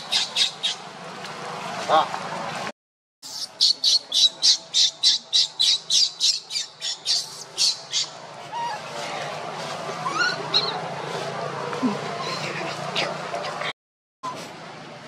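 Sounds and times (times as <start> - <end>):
baby monkey squealing: 3.3 - 8.8, 10.0 - 10.8
faint rising calls: 3.4 - 13.6.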